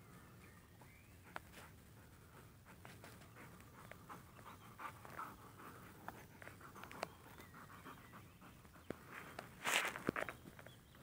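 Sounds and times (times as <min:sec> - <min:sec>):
dog panting: 0:00.8 - 0:09.1.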